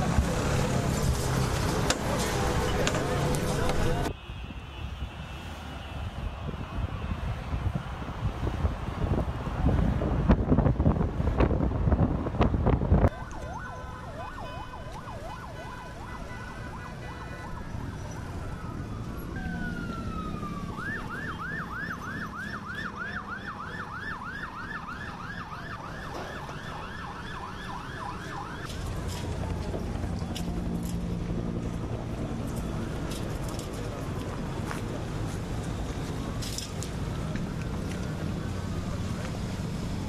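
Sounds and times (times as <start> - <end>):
sirens wailing: 13.0 - 40.0
siren fast yelp: 13.1 - 26.0.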